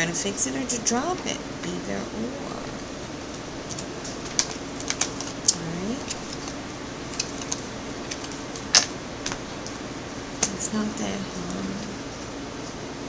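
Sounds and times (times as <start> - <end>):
steady low hum: 0.0 - 13.0
cards being shuffled: 3.6 - 9.7.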